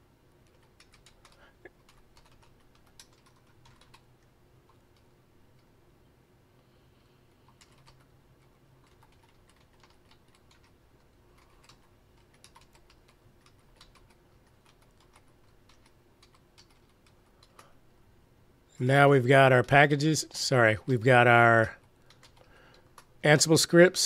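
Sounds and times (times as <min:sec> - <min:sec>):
keyboard typing: 0:00.4 - 0:05.7, 0:07.4 - 0:17.7, 0:21.8 - 0:23.2.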